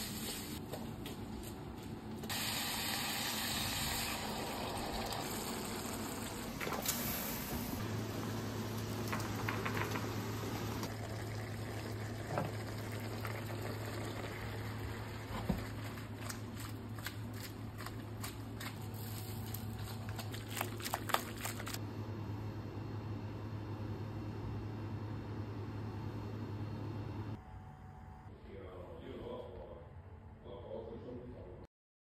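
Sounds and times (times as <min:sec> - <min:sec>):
water boiling: 0:02.3 - 0:21.8.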